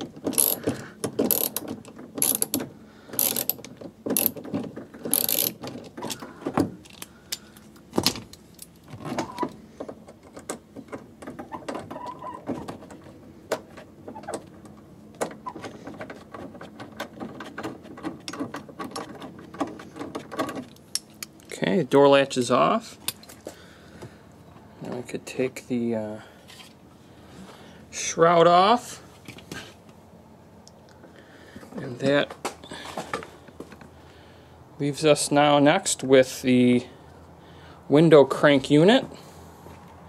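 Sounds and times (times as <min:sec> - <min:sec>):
ratchet screwdriver clicking: 0:02.2 - 0:02.6, 0:03.2 - 0:03.6, 0:05.1 - 0:05.6.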